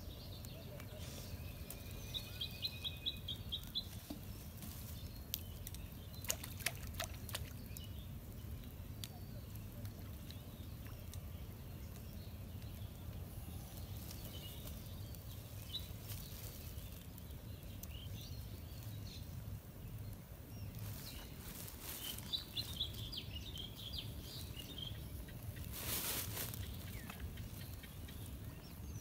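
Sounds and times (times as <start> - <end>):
small birds chirping: 0.0 - 29.0.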